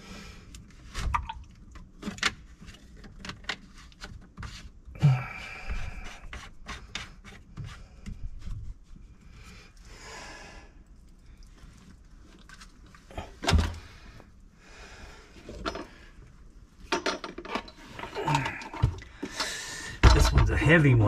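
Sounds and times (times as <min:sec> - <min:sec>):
tools clicking and knocking: 0:16.9 - 0:20.6.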